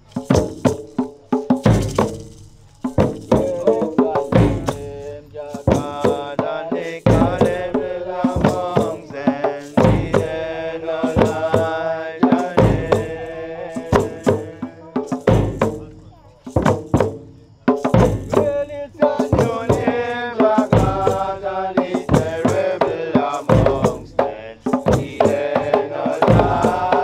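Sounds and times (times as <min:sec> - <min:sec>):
hand drums playing steady rhythm: 0:00.0 - 0:27.0
voices chanting long notes: 0:03.3 - 0:15.0, 0:18.4 - 0:27.0.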